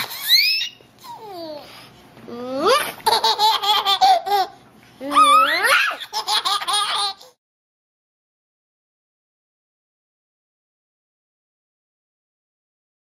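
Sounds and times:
baby laughing: 0:00.0 - 0:01.6, 0:02.7 - 0:07.4.

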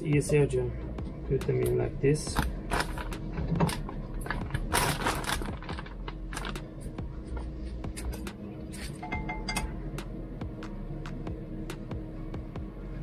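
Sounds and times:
plastic bag crinkling: 0:02.4 - 0:06.9.

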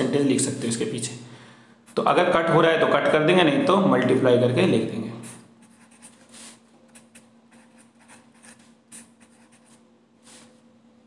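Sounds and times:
pen scratching on paper: 0:05.2 - 0:10.5.

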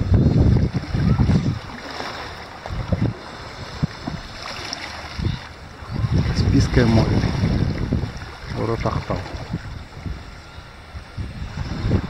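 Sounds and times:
wind buffeting microphone: 0:00.0 - 0:12.0.

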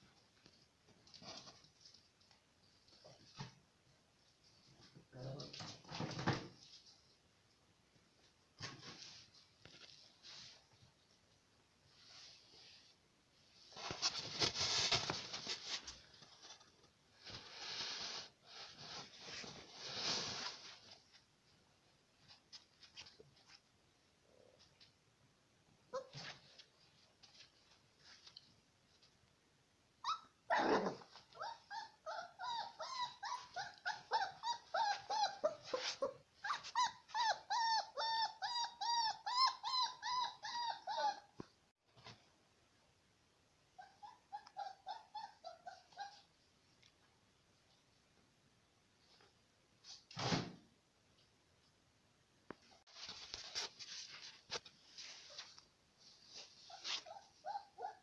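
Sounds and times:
puppy whimpering: 0:30.0 - 0:41.4, 0:43.8 - 0:46.4, 0:56.4 - 0:58.0
puppies scratching and rustling: 0:52.6 - 0:57.4.

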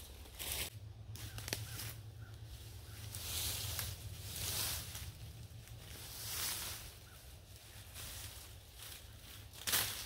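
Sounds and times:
footsteps crunching dry leaves: 0:00.0 - 0:10.0
branch dragged across leaves: 0:03.0 - 0:10.0.

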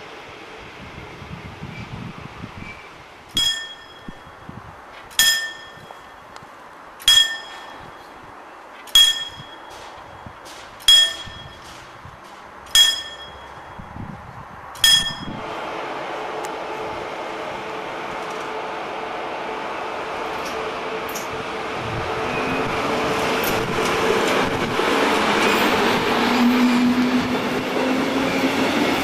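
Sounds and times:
level crossing warning bell: 0:03.4 - 0:04.6, 0:05.2 - 0:06.4, 0:07.0 - 0:11.8, 0:12.7 - 0:14.2, 0:14.8 - 0:15.4.

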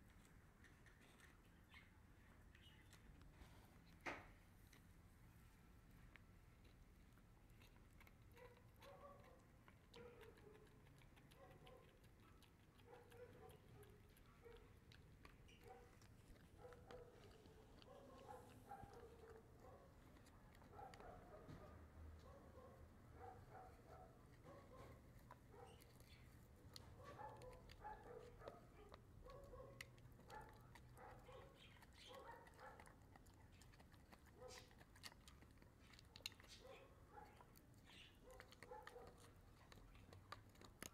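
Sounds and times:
dog teeth clicking on chew: 0:06.6 - 0:21.3, 0:23.6 - 0:40.9.

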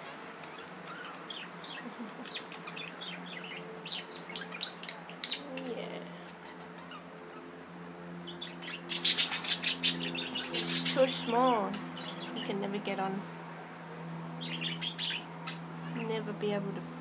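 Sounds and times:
faint steady hum: 0:00.0 - 0:17.0
budgerigars chirping: 0:00.4 - 0:05.6, 0:06.2 - 0:07.5, 0:08.2 - 0:12.6, 0:14.4 - 0:16.0.

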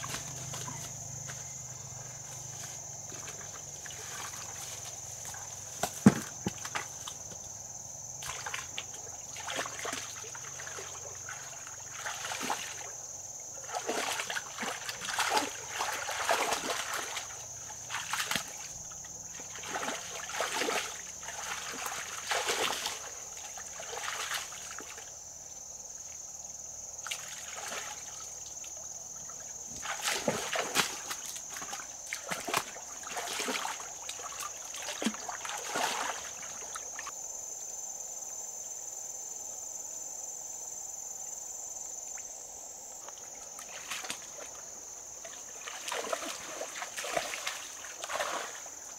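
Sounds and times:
splashing in shallow water: 0:00.0 - 0:07.4, 0:08.2 - 0:25.1, 0:27.0 - 0:37.1, 0:43.0 - 0:48.9
high-pitched insect drone: 0:00.0 - 0:30.6.

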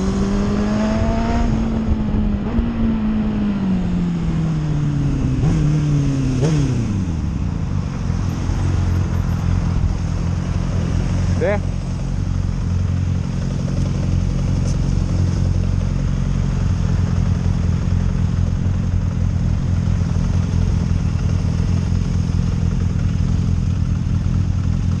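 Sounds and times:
motorcycle engine idling: 0:07.2 - 0:25.0.

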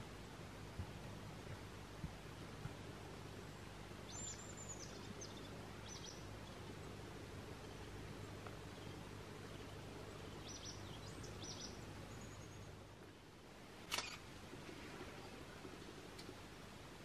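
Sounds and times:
outdoor background hiss: 0:00.0 - 0:17.0
sharp click: 0:13.9 - 0:14.2.

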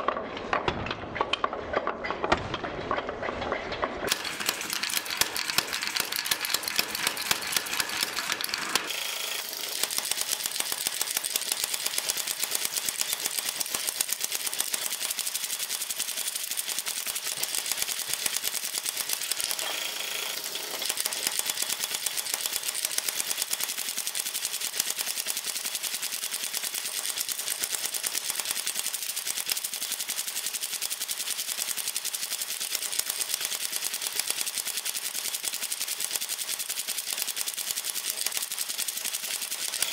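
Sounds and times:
power hammer pounding hot iron: 0:04.1 - 0:15.9.

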